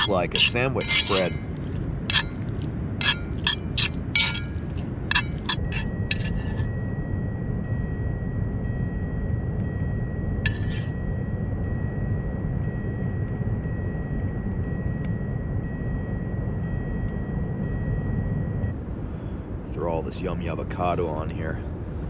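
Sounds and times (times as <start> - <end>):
spoon scraping skillet: 0.0 - 6.7, 10.5 - 10.9
faint high whine: 0.0 - 22.0
low rumble: 0.0 - 22.0.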